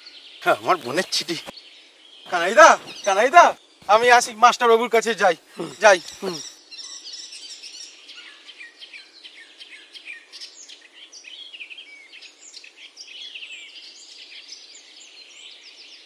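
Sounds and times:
birds chirping: 0:00.0 - 0:10.7
background hiss: 0:00.0 - 0:16.0.

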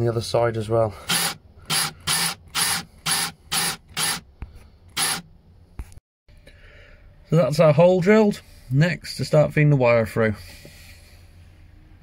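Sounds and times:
drill hole saw cutting wood: 0:01.0 - 0:04.2, 0:04.9 - 0:05.3.

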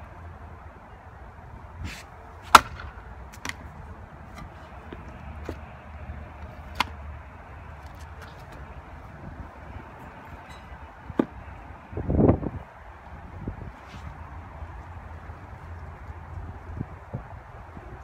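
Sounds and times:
maul striking log: 0:02.5 - 0:03.6
wooden knocks of firewood: 0:02.5 - 0:03.6.

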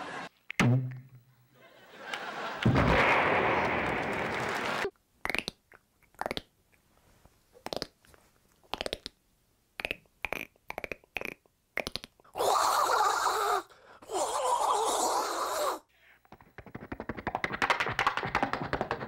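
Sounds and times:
mouth clicks imitating bones cracking: 0:04.9 - 0:06.8, 0:07.6 - 0:09.2, 0:09.8 - 0:12.4.

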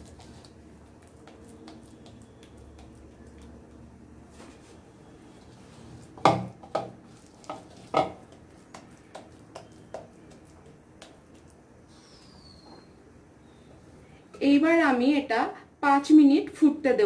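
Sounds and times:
utensil knocking on cooking pan: 0:06.2 - 0:08.2.

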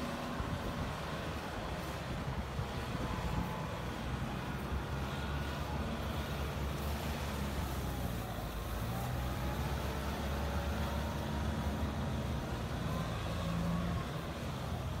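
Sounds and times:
tractor diesel engines running: 0:00.0 - 0:15.0.

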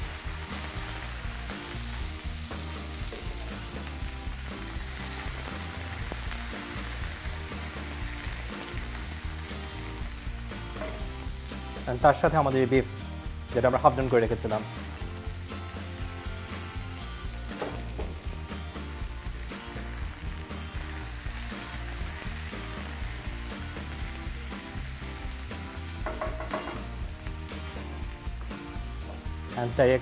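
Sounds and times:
food sizzling in a wok: 0:00.0 - 0:30.0
spatula scraping and tapping pan: 0:26.0 - 0:26.9.

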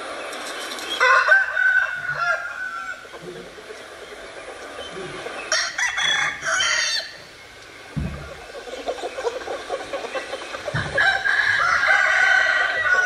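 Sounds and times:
chickens clucking: 0:00.0 - 0:13.0
rooster crowing: 0:01.0 - 0:03.0, 0:05.5 - 0:07.2, 0:10.7 - 0:13.0.

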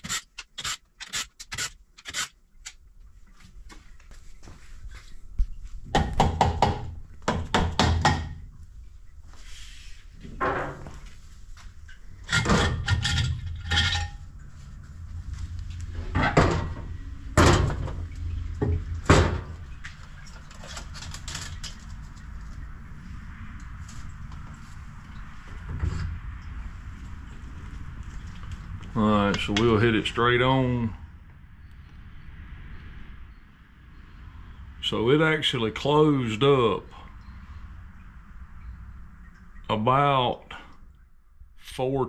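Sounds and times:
metal clunks and clatter: 0:12.2 - 0:14.3, 0:16.0 - 0:19.6.

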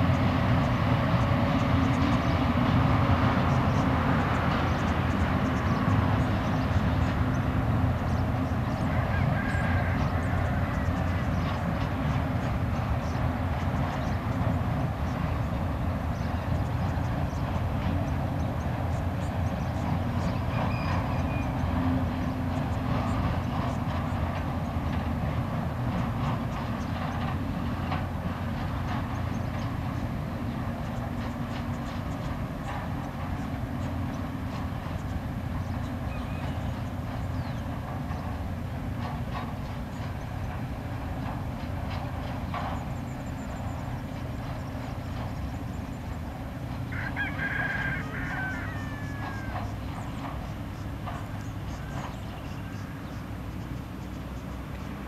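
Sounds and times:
train clanks: 0:00.0 - 0:55.0
train wagons rumbling over bridge: 0:00.0 - 0:55.0
rooster crowing: 0:08.8 - 0:11.3, 0:46.9 - 0:49.8.

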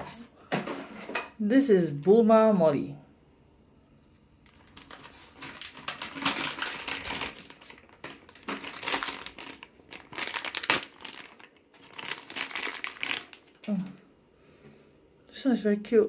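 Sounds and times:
plastic bag crinkling: 0:04.4 - 0:13.9.

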